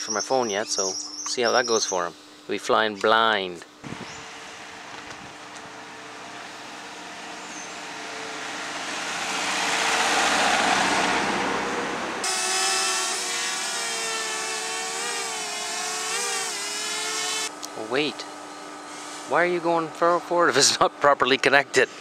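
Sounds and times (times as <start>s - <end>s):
drone propellers whining: 3.8s - 19.8s
vehicle driving past: 5.7s - 15.0s.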